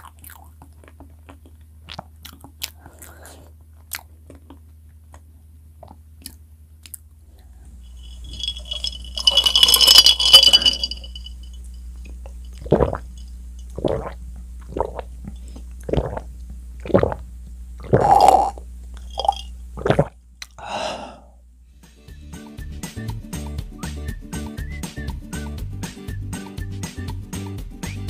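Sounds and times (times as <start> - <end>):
glass jar clinking and rattling: 7.9 - 11.8, 12.4 - 14.1, 18.0 - 19.5
gulping swallows: 13.8 - 15.1, 15.8 - 17.2, 17.8 - 18.6
man drinking through a straw: 13.8 - 15.1, 17.8 - 18.6, 19.2 - 20.1.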